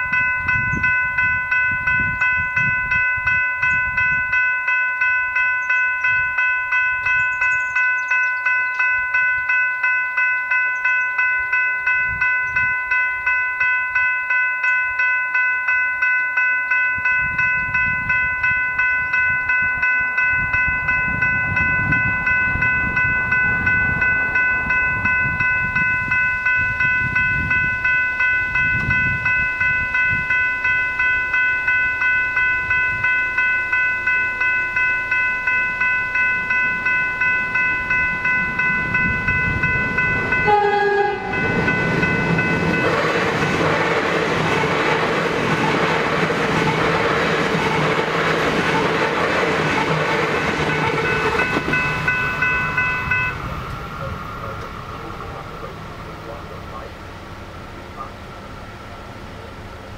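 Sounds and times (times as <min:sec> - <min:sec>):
level crossing bells ringing: 0:00.0 - 0:59.9
train running noise: 0:00.0 - 0:59.9
train horn blast: 0:40.4 - 0:41.7.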